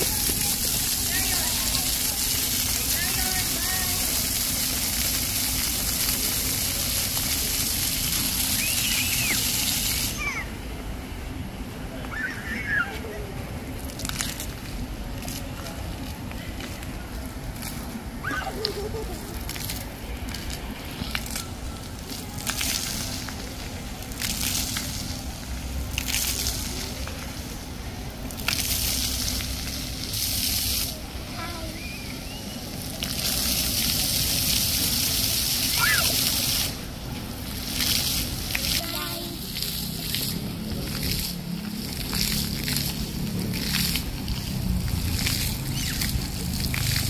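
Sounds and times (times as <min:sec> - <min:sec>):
fountain water spraying: 0:00.0 - 0:47.0
steady low rumble: 0:32.5 - 0:47.0.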